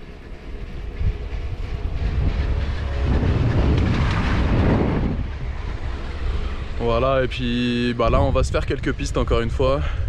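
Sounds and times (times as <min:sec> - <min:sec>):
chairlift rumbling and clattering: 0:00.0 - 0:10.0.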